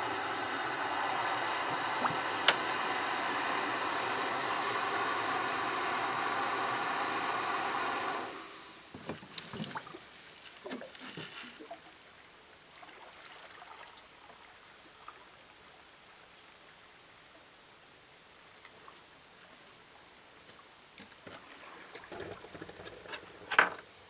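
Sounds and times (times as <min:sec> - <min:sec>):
gas stove burner hissing: 0:00.0 - 0:09.2.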